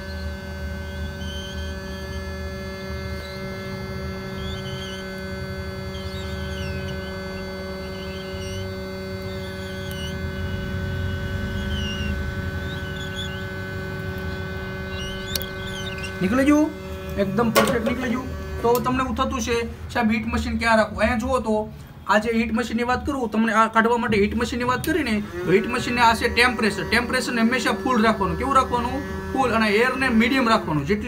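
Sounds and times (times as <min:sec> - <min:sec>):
electrical hum: 0:00.0 - 0:31.0.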